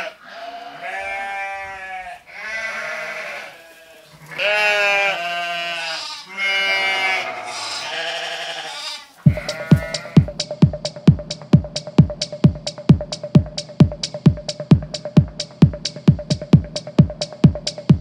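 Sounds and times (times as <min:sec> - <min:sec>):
sheep bleating: 0:00.0 - 0:10.3
electronic music with thumping beat: 0:09.3 - 0:18.0.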